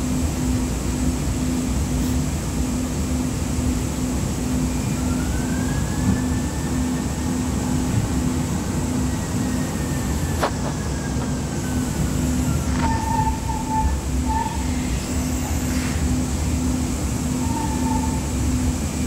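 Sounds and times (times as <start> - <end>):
tram rumbling along track: 0.0 - 19.0.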